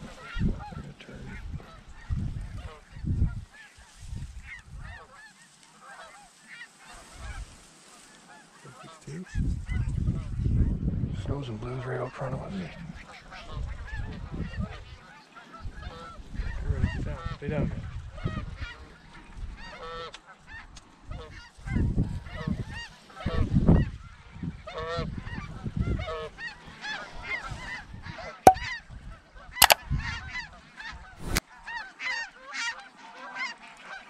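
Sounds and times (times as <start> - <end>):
wind buffeting microphone: 1.4 - 4.9, 9.4 - 11.4, 13.6 - 14.9.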